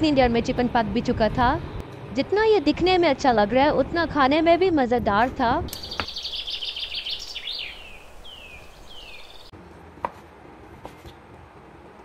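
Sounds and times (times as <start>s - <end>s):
small songbirds chirping: 5.7s - 9.5s.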